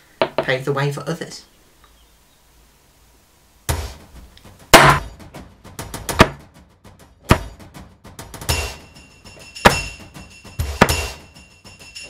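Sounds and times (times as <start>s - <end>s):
hammer striking metal punch: 4.7s - 5.3s, 6.1s - 6.5s, 7.2s - 7.8s, 9.6s - 11.3s.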